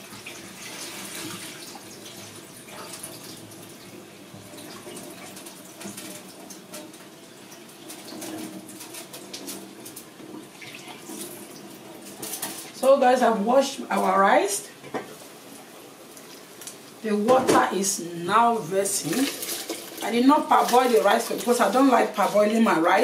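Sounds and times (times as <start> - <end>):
water splashing in a sink: 0.0 - 12.8, 18.6 - 23.0
kitchen tap running: 0.0 - 13.2, 16.0 - 23.0.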